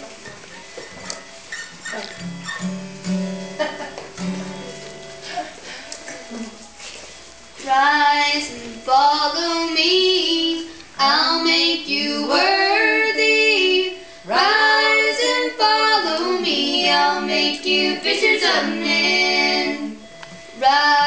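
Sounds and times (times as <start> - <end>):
girls singing gospel unaccompanied: 7.4 - 21.0.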